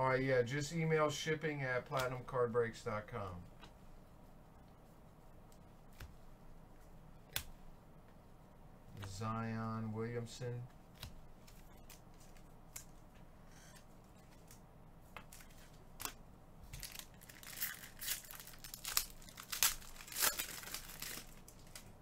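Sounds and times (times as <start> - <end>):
foil wrapper crinkling and tearing: 16.8 - 22.0.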